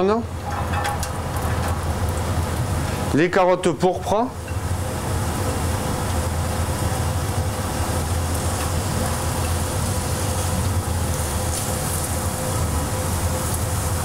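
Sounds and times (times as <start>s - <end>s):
steady low hum: 0.0s - 14.0s
carrots sizzling in a frying pan: 4.6s - 14.0s.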